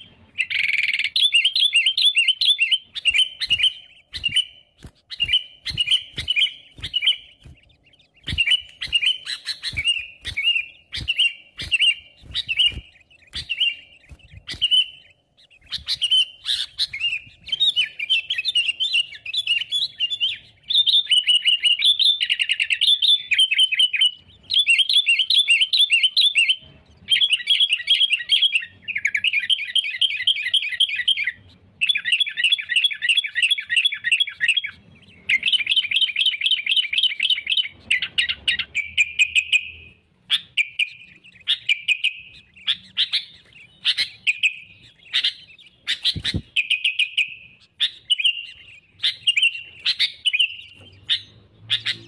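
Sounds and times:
bird chattering trills: 0.0s - 52.0s
bird chirps and clicks: 0.0s - 52.0s
bulbul singing: 0.0s - 52.0s.

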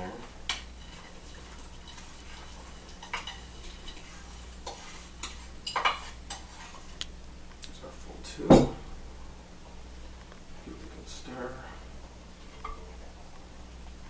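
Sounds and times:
spoon scraping a plate: 0.5s - 7.0s.

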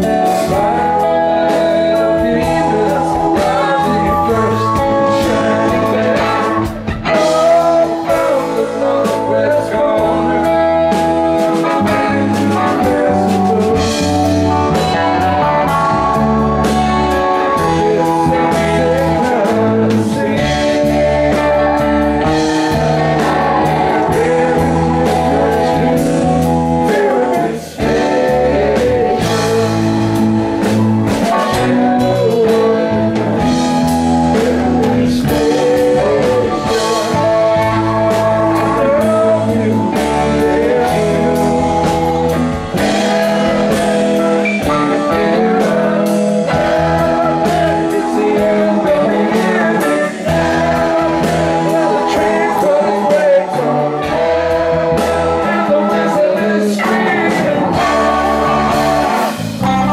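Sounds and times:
live rock band playing: 0.0s - 59.9s
man singing lead: 0.0s - 59.9s.

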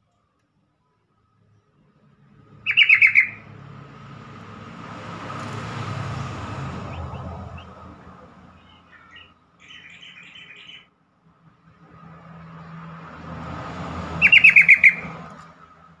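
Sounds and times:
bulbul calling: 2.6s - 3.5s, 8.6s - 10.9s, 14.2s - 15.2s.

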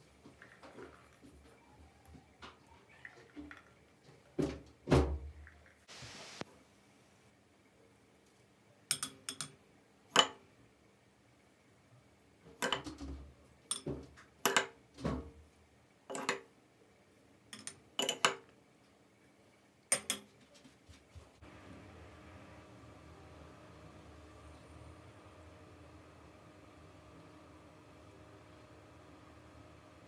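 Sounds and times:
metal spoon clinking on glass: 8.9s - 9.6s, 17.6s - 18.4s.

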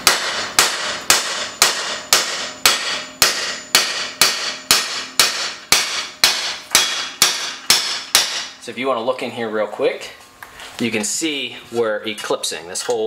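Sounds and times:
hammer striking hammer on metal: 0.0s - 8.6s.

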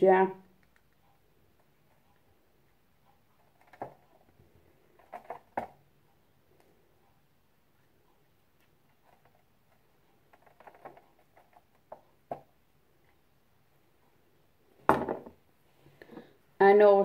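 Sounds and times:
loud knock: 14.9s - 15.4s.

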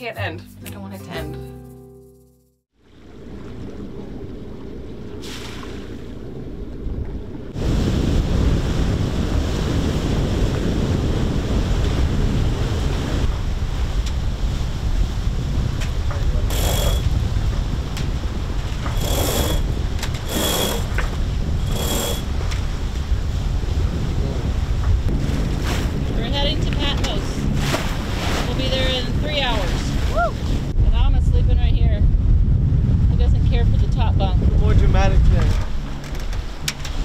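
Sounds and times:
water rushing along hull: 2.8s - 30.8s
wind buffeting microphone: 2.9s - 37.0s
short high squeaks: 16.5s - 17.1s.

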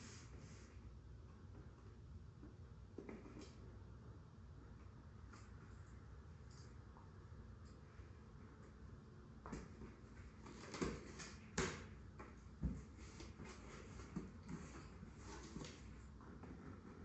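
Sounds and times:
scraping and rustling on cardboard: 12.3s - 17.0s.

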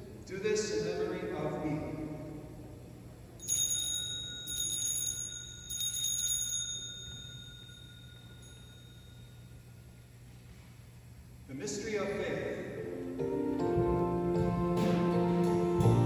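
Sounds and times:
altar bells ringing: 3.4s - 10.1s.

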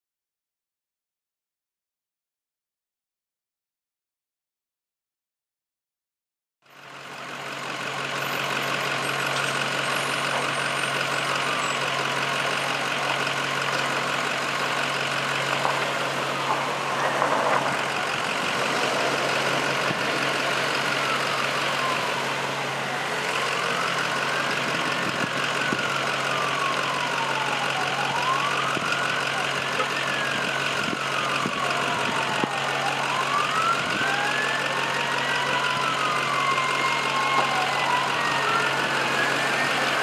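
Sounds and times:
siren wailing: 8.3s - 40.0s.

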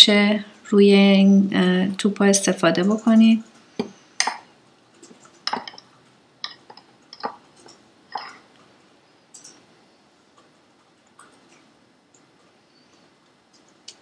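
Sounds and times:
fork tapping ceramic bowl: 6.4s - 7.4s.

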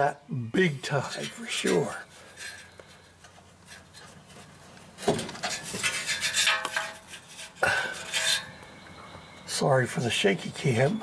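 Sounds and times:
metal clinking and scraping: 0.9s - 9.4s.

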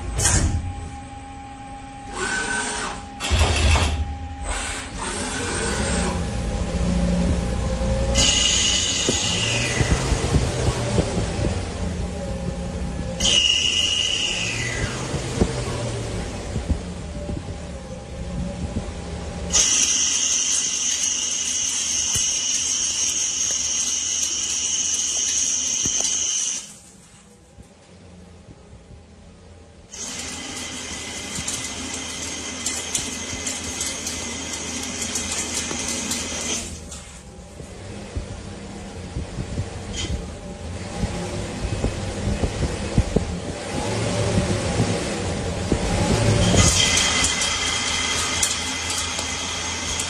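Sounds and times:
tooling whirring and hissing: 0.0s - 27.4s, 29.9s - 38.6s, 39.4s - 50.0s
lathe machine hum: 0.9s - 26.8s, 29.9s - 50.0s
low rumble: 5.9s - 13.2s, 14.8s - 19.6s, 37.1s - 46.7s.

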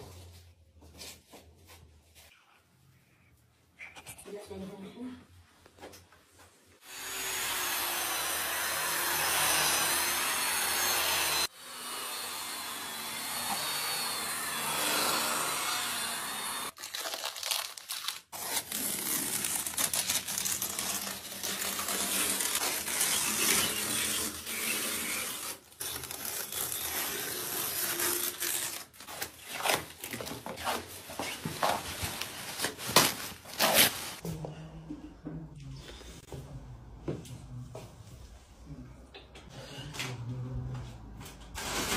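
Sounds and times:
masking tape peeling and crumpling: 16.7s - 34.2s.

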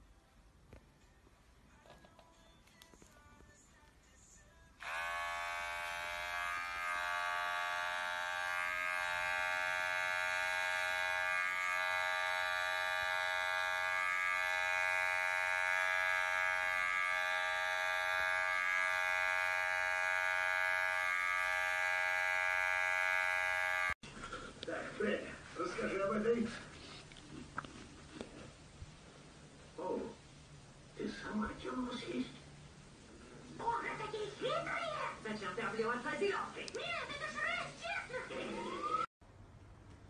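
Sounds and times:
electric hair clippers buzzing: 4.8s - 24.0s.

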